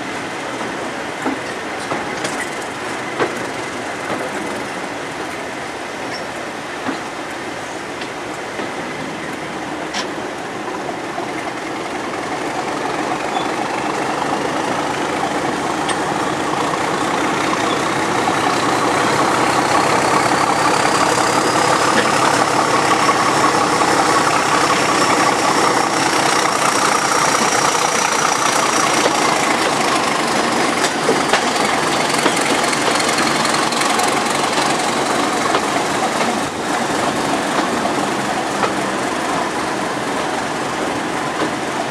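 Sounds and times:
diesel locomotive engine: 0.0s - 41.9s
engine whine: 12.4s - 40.0s.

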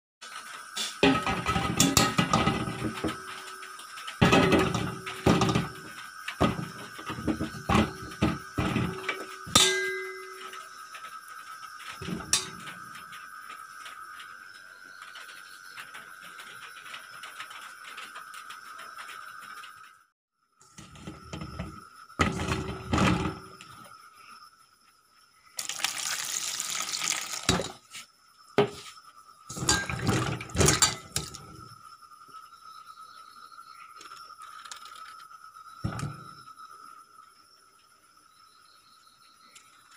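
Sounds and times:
vegetable pieces knocking in steel bowl: 1.0s - 3.3s, 4.2s - 10.1s, 29.5s - 31.6s
water pouring from a jug: 25.6s - 27.9s.

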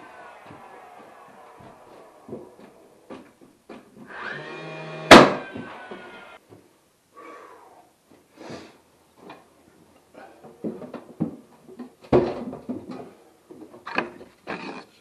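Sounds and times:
sharp bang: 5.1s - 5.8s.

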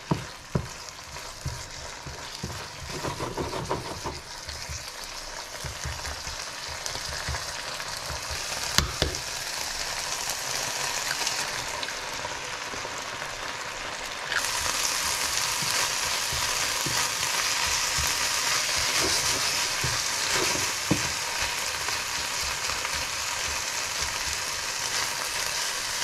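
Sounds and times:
spatula scraping a pan: 0.0s - 8.7s, 14.3s - 26.0s
meat sizzling in a pan: 0.0s - 26.0s.

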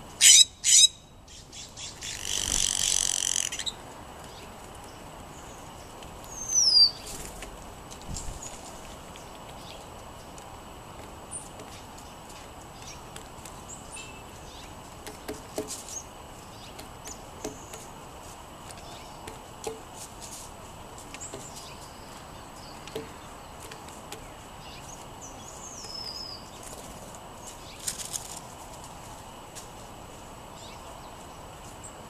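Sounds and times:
songbirds chirping: 0.0s - 32.0s
birds pecking on wooden table: 14.9s - 16.0s, 22.8s - 24.4s.

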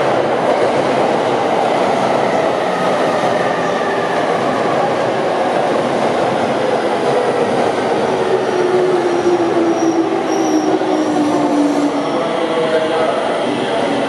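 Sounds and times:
train wheel and rail noise: 0.0s - 14.0s
high wheel squeal: 9.7s - 11.2s.

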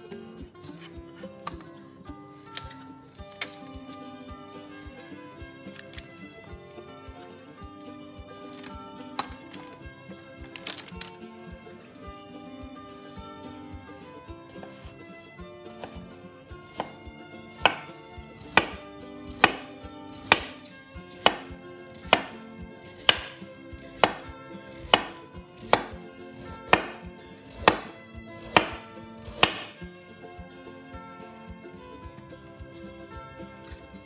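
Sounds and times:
soft background music: 0.0s - 34.0s
knife chopping on cutting board: 2.5s - 4.0s, 4.7s - 6.8s, 7.7s - 9.8s, 14.6s - 15.0s, 15.7s - 29.8s.

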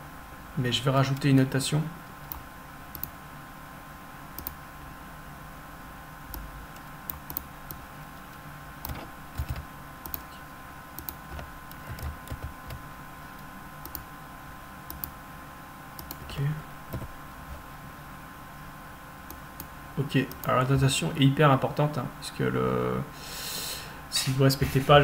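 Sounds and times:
faint steady hum: 0.0s - 25.0s
keyboard keystrokes: 8.8s - 10.3s, 11.0s - 12.8s, 16.0s - 17.6s.

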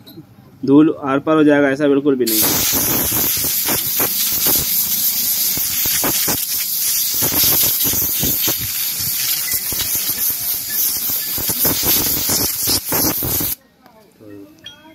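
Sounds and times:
compressed air blow gun hissing: 2.3s - 13.6s.

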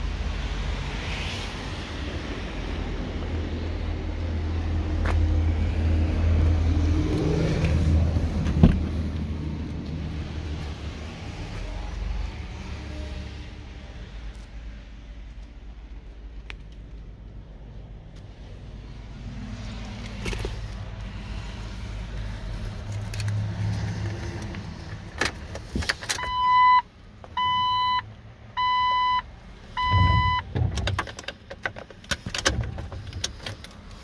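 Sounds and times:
car warning chime beeps: 26.2s - 30.6s.

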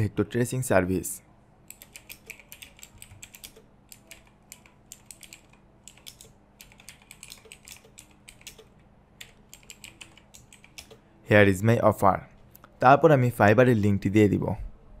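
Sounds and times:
typing on computer keyboard: 1.7s - 11.0s.

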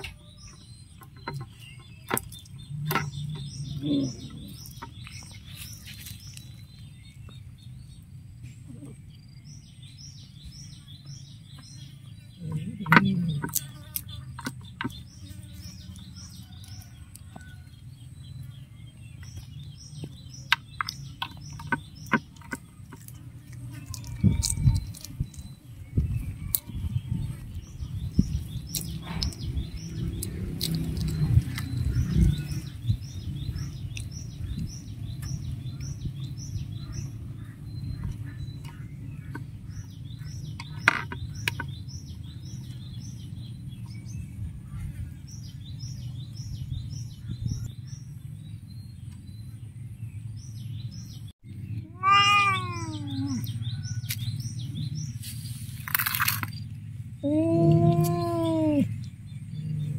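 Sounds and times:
cat meowing: 51.8s - 53.5s.

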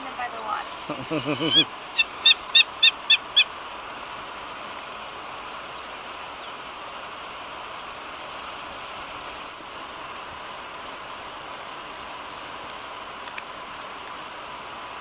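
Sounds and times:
outdoor bush hiss: 0.0s - 15.0s
high-pitched animal calls: 0.9s - 3.5s.

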